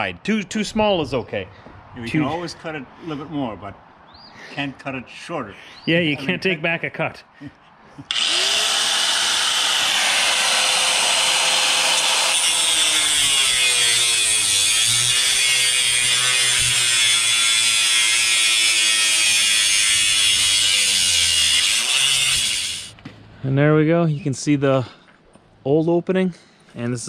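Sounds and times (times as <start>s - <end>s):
angle grinder cutting metal siding: 8.1s - 23.0s.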